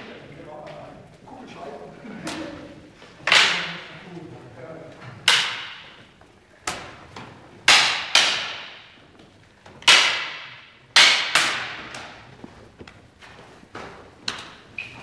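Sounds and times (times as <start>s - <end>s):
practice swords clacking together: 2.3s - 4.0s, 5.0s - 15.0s.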